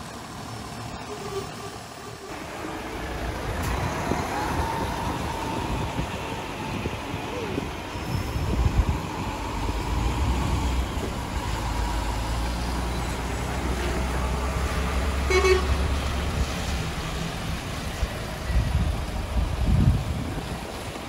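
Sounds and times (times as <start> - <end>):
diesel lorries driving slowly: 0.0 - 21.0
truck horn toot: 15.2 - 15.9.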